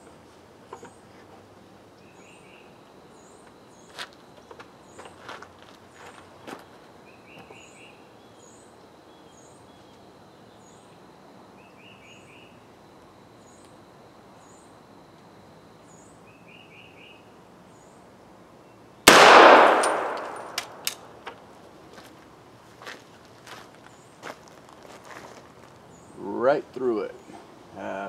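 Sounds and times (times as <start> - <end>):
gunshot: 19.1 - 20.8.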